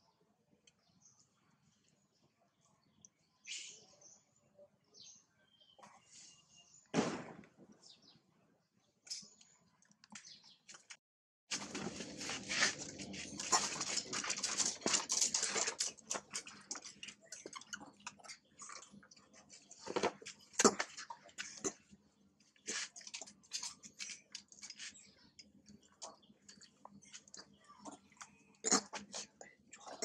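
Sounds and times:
dense crackling and scuffling: 11.5 - 16.6.

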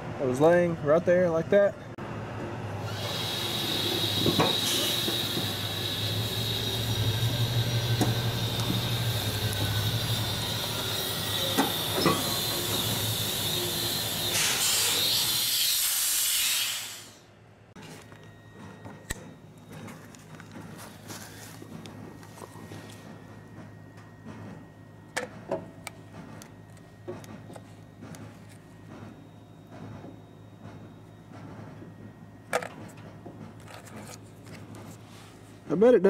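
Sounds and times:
truck engine hum: 3.9 - 14.3.

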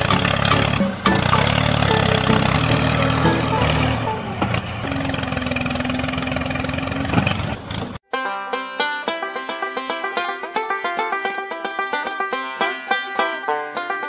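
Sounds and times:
tractor engine running: 0.0 - 8.0.

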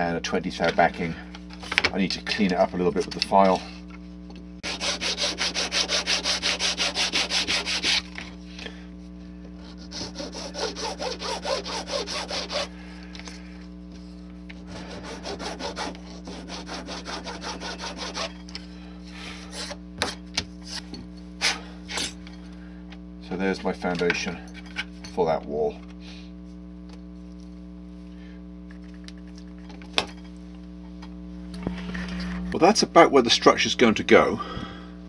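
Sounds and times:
metal file rasping on plastic: 4.6 - 8.1, 9.6 - 12.7, 14.7 - 18.4.

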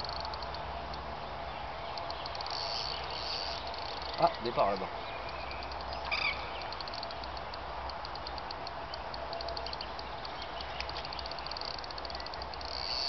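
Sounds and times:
fishing reel clicking: 6.7 - 9.8, 11.1 - 13.0.

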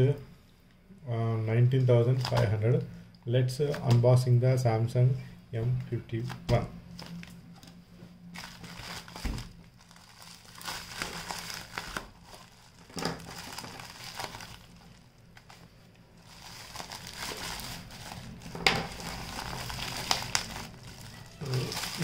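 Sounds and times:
plastic mailer bag crinkling: 8.3 - 22.0.

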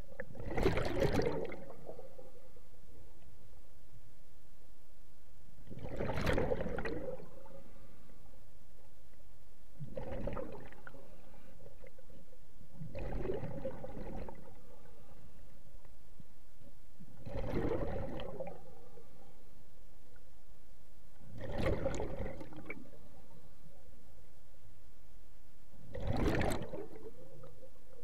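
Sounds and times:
exhaled breath bubbling underwater: 0.2 - 2.2, 5.7 - 8.0, 9.8 - 12.0, 12.8 - 15.2, 17.2 - 19.0, 21.4 - 23.1, 25.9 - 27.5
steady background hiss: 1.5 - 17.3, 18.3 - 21.4, 22.3 - 25.9.

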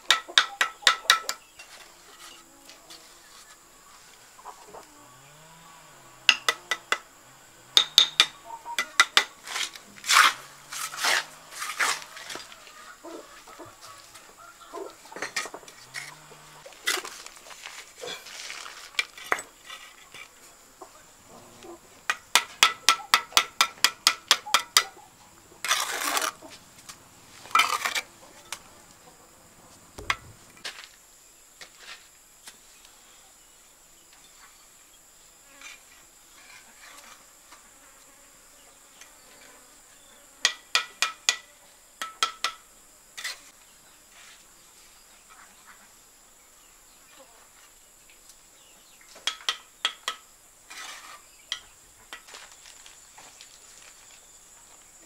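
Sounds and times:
trowel tapping bricks: 0.0 - 1.8, 6.3 - 7.1, 7.8 - 11.2, 22.1 - 24.9, 40.4 - 42.6, 49.2 - 50.2
high insect drone: 0.2 - 55.0
trowel scraping mortar: 7.8 - 12.9, 15.2 - 20.3, 25.6 - 26.6, 27.4 - 28.1, 50.7 - 51.3.

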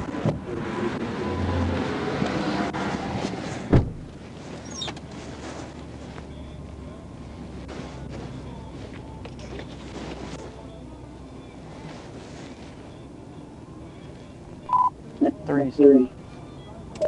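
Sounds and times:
highway traffic passing: 0.0 - 17.0
sharp thump: 3.6 - 4.1.

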